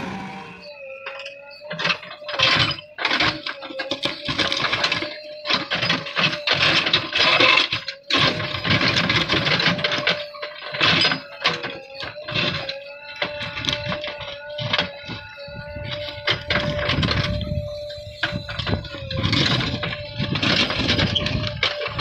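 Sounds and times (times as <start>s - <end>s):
bucket grinding through stony soil: 0.0s - 0.7s, 18.1s - 22.0s.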